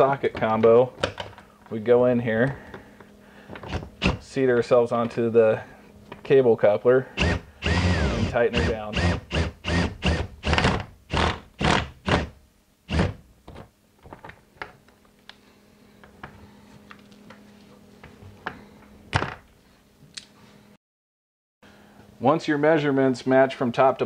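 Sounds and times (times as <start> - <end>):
drill turning in short bursts: 7.2 - 12.3, 12.9 - 13.2.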